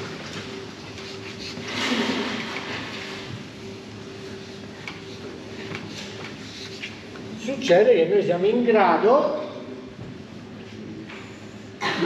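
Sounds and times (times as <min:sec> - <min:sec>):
room hum: 0:00.0 - 0:12.0.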